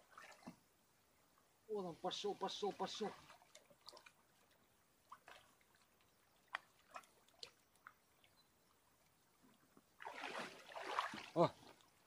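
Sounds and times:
fish splashing at water surface: 10.0s - 11.4s.

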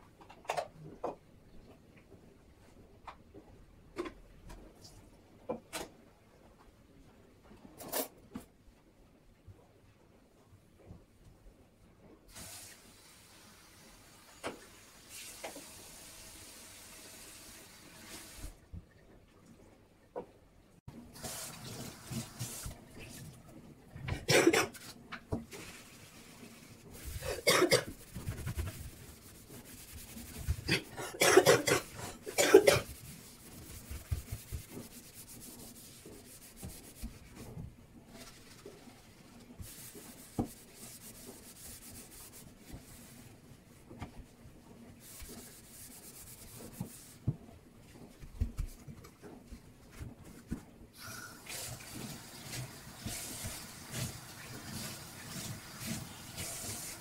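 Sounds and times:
sponge scrubbing steel sink: 25.5s - 43.2s, 45.0s - 47.4s, 51.5s - 57.0s.

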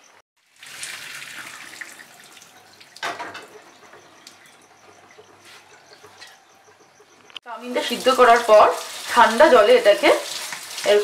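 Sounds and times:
water pouring into a colander: 0.4s - 3.1s, 7.8s - 11.0s
water trickling: 0.4s - 6.3s, 7.6s - 11.0s.

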